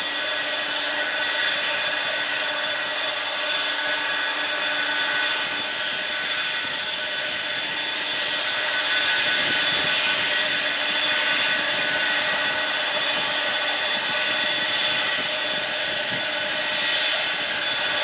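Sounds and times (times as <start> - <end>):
jet engines whining: 0.0 - 18.0.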